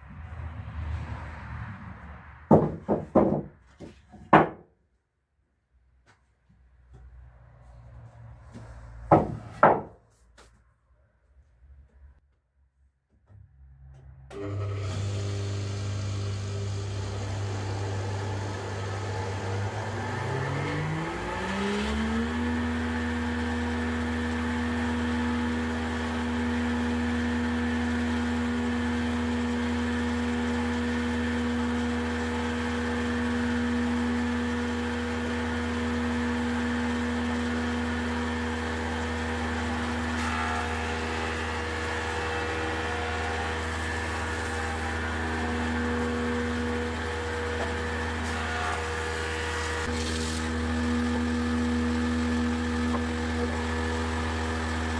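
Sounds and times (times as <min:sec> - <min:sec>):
electric motor whine starting up: 0:14.3 - 0:54.9.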